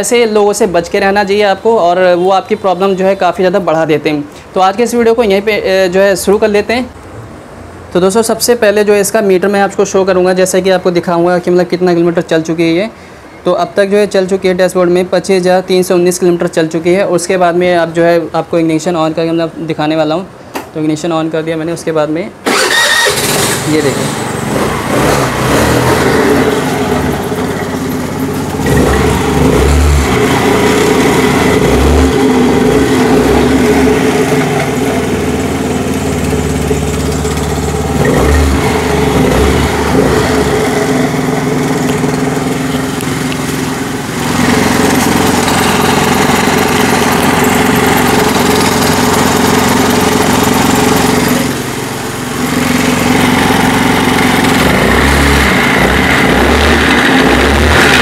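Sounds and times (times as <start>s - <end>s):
scooter engine revving: 22.4s - 58.0s
abnormal clutch noise: 24.5s - 41.0s.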